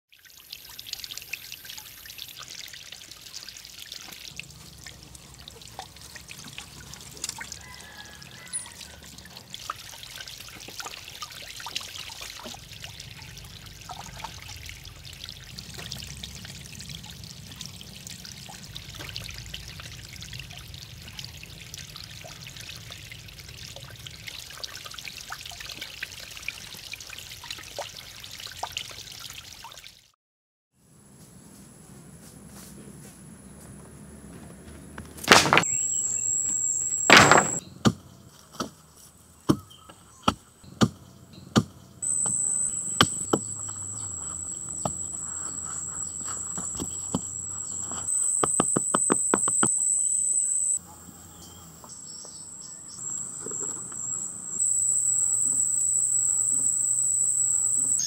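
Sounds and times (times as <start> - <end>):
small water splashes: 0.1 - 30.0
water trickling over rocks: 0.1 - 30.0.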